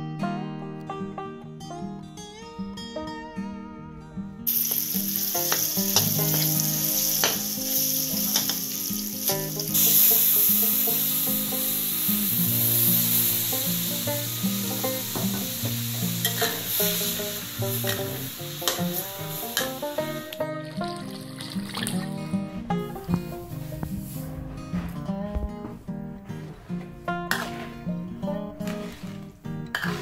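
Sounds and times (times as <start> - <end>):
spatula scraping a wok: 4.5 - 20.2, 22.3 - 25.2, 26.0 - 30.0
paste sizzling in hot oil: 4.5 - 24.3, 27.3 - 30.0.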